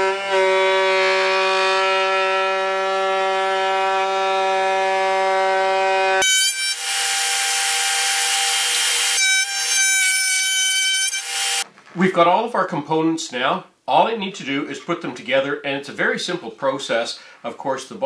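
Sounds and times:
router bit cutting wood: 0:00.0 - 0:11.6
router whining: 0:00.0 - 0:11.6.

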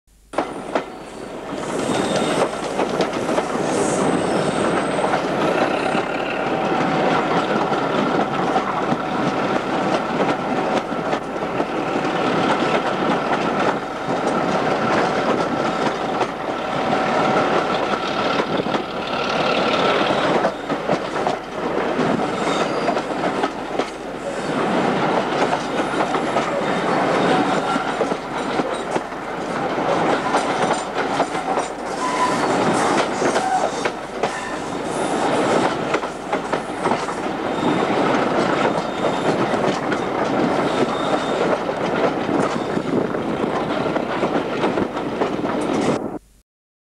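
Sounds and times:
train running noise: 0:00.1 - 0:46.4
train wheels clicking over rail joints: 0:00.3 - 0:46.0.

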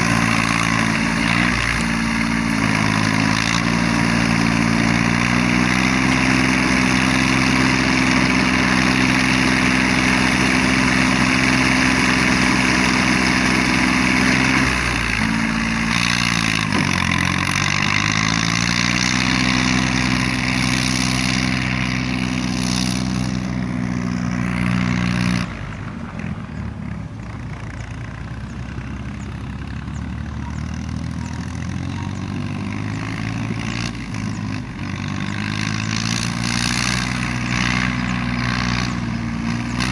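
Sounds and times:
diesel tractor engine under load: 0:00.0 - 0:39.9.

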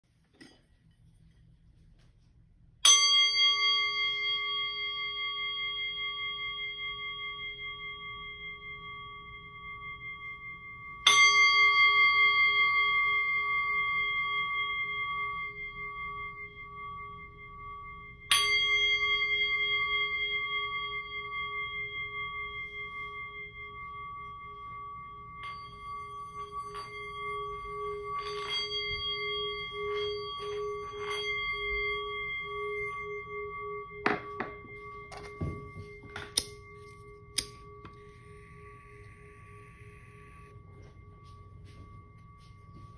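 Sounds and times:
singing bowl struck and ringing: 0:02.8 - 0:42.9
singing bowl rim rubbed: 0:19.0 - 0:42.9.

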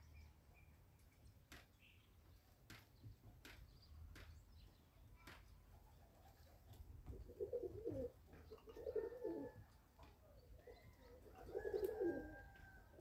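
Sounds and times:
pigeon cooing: 0:06.2 - 0:09.7, 0:10.3 - 0:13.0.

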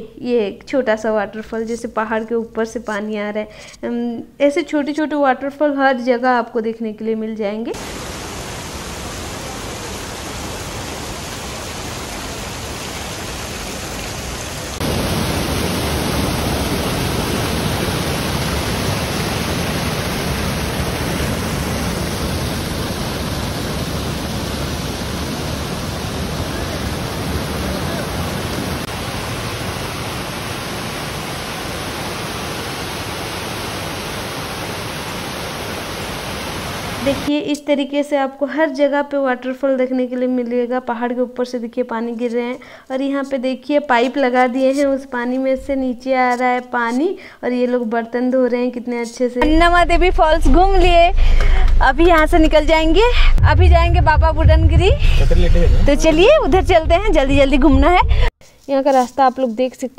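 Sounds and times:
waterfall rushing: 0:07.8 - 0:37.3.

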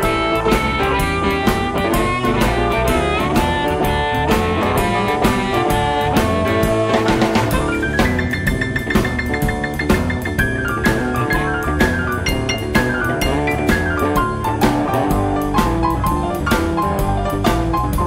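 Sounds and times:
drum kit beat: 0:00.0 - 0:18.0
lead guitar with bending notes: 0:00.0 - 0:18.0.

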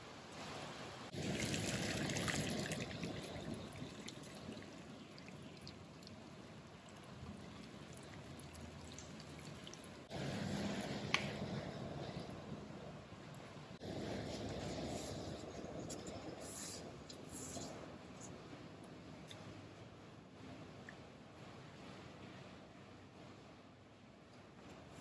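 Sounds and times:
water splashing onto leaves in bowl: 0:01.1 - 0:10.1.

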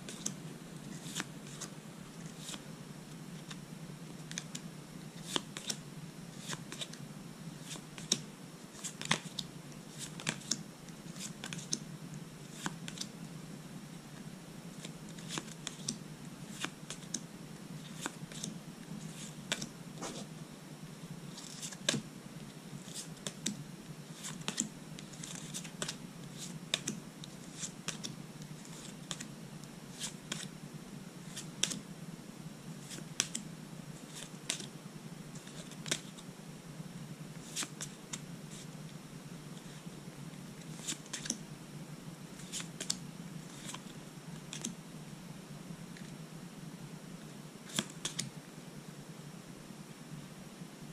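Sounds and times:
trading cards snapping and sliding: 0:05.2 - 0:05.8, 0:08.8 - 0:10.6, 0:24.2 - 0:29.3, 0:30.0 - 0:30.5, 0:31.3 - 0:31.8, 0:32.9 - 0:33.4, 0:34.1 - 0:34.7, 0:40.7 - 0:41.4, 0:42.4 - 0:43.8, 0:44.5 - 0:44.8, 0:47.7 - 0:48.3.

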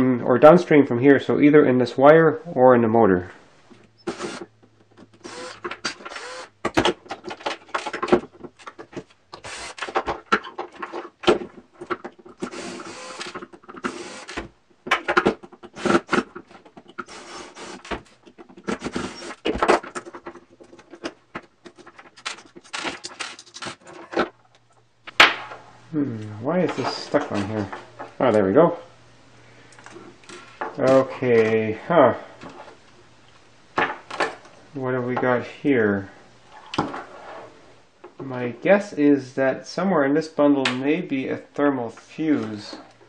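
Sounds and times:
cordless screwdriver whirring: 0:04.0 - 0:04.5, 0:05.2 - 0:06.5, 0:09.4 - 0:09.9, 0:12.4 - 0:14.4
metal parts clinking: 0:22.1 - 0:24.0.

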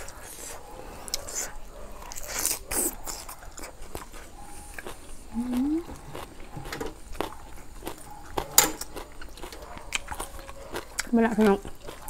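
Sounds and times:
person chewing: 0:00.0 - 0:12.0
mouth clicks: 0:04.8 - 0:06.3.

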